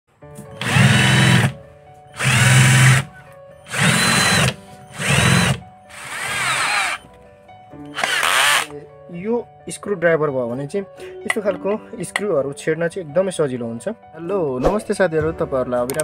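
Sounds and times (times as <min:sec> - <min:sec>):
cordless drill whining: 0:00.5 - 0:07.0, 0:07.9 - 0:08.7.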